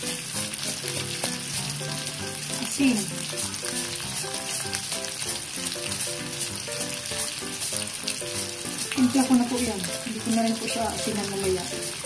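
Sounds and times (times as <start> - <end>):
food sizzling in a pot: 0.0 - 12.0.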